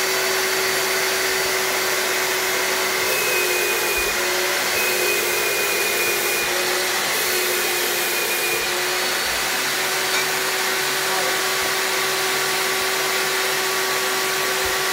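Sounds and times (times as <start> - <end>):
spray gun hissing and whining: 1.5 - 10.2.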